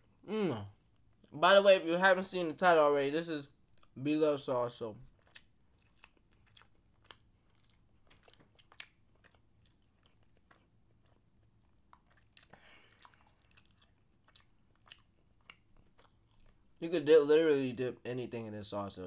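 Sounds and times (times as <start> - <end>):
person chewing: 3.6 - 4.0, 5.0 - 16.8.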